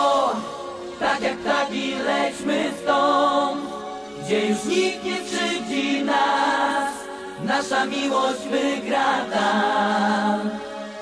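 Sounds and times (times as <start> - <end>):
choir-like sung vocals: 0.0 - 11.0
synthesizer: 0.0 - 11.0.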